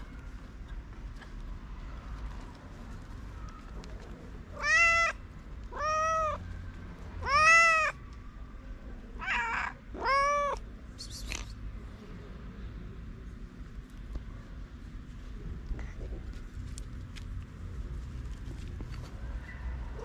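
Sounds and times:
cats meowing: 4.5s - 6.4s, 7.2s - 8.0s, 9.2s - 10.6s.

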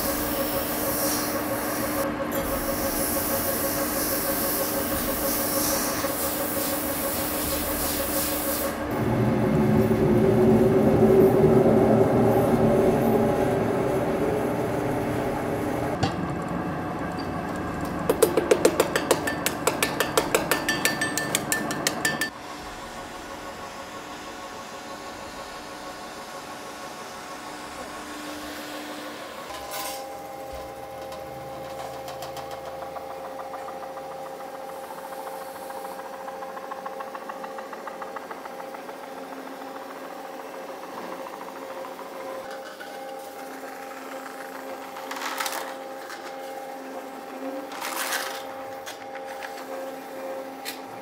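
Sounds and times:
tool scraping spinning metal: 17.2s - 22.4s.

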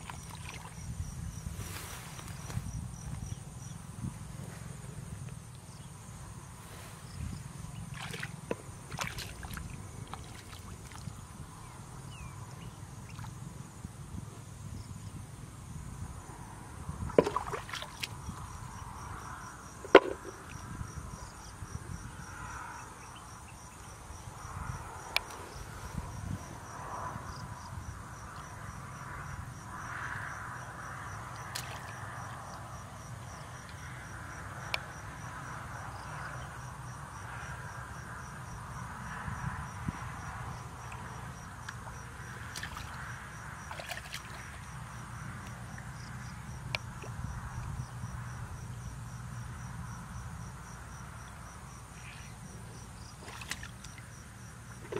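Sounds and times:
sharp splashes: 0.0s - 0.8s, 7.9s - 11.1s, 17.1s - 18.1s, 31.5s - 32.0s, 42.5s - 43.0s, 43.7s - 44.5s, 53.2s - 54.0s
water sloshing: 0.0s - 0.9s, 7.8s - 11.3s, 17.1s - 18.4s, 19.8s - 20.6s, 31.4s - 32.0s, 40.8s - 44.7s, 53.0s - 54.0s, 54.7s - 54.9s
insects trilling: 0.0s - 54.9s
pulsed insect chirp: 2.2s - 13.9s.

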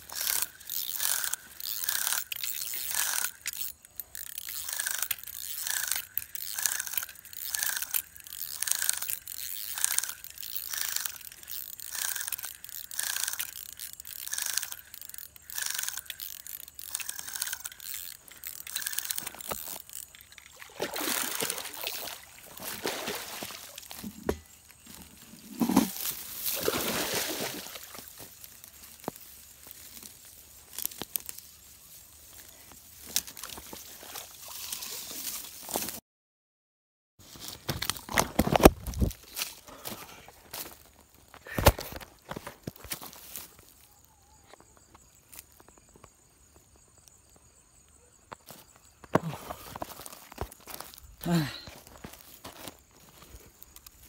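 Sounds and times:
fishing reel cranking: 0.0s - 22.7s
water splashing: 20.3s - 24.0s, 26.5s - 28.0s.

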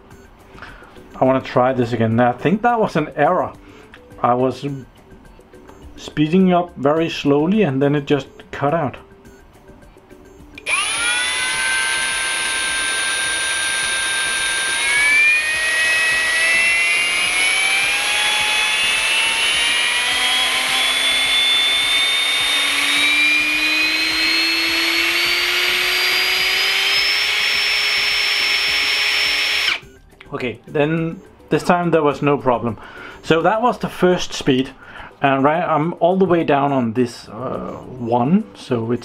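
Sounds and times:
hammer drill whining: 10.6s - 30.0s.

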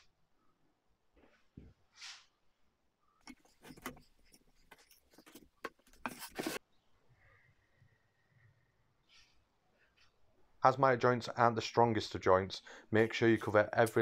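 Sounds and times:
brief scrape: 3.3s - 6.6s.

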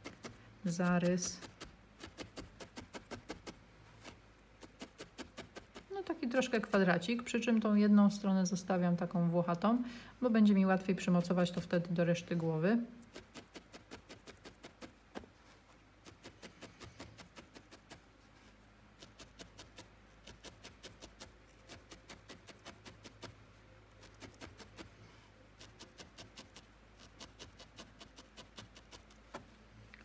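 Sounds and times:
felting needle stabbing wool: 0.0s - 6.9s, 13.0s - 18.1s, 19.0s - 24.9s, 25.6s - 29.5s.

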